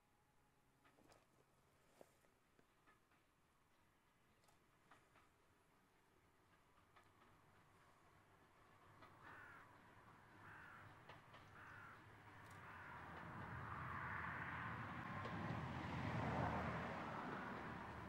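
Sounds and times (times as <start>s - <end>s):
approaching steam train: 5.1s - 18.0s
crow cawing: 9.2s - 9.7s, 10.4s - 10.9s, 11.6s - 13.0s.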